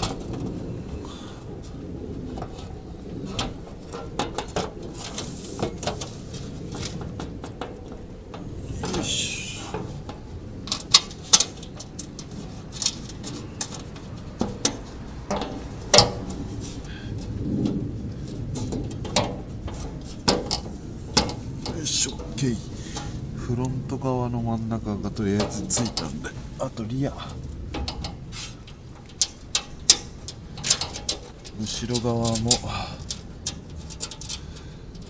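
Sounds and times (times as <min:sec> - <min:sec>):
metal panel and bolts clinking: 0:00.0 - 0:00.6, 0:02.3 - 0:23.2, 0:25.1 - 0:35.0
short metal scrape: 0:28.3 - 0:28.7.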